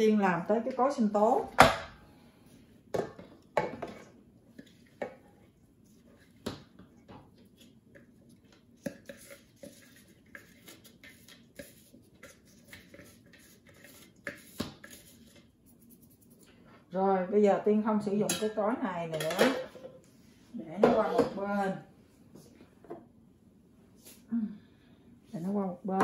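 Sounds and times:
hand scraping bowl: 7.6 - 16.6.

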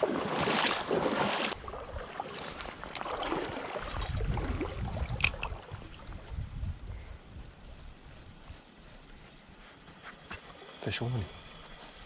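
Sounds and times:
creek water splashing: 0.0 - 6.5
water running with low rumble: 0.0 - 12.0.

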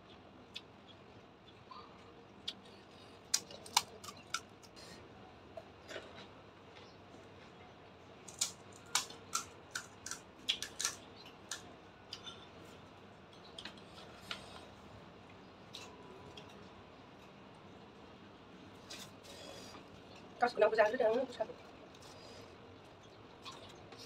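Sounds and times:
crisp shells cracking and crunching: 3.3 - 4.8, 8.2 - 11.7.

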